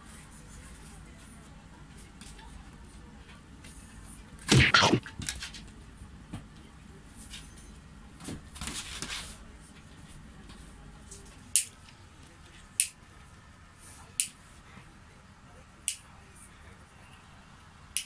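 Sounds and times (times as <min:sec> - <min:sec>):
sharp clicks: 0:04.5 - 0:05.1.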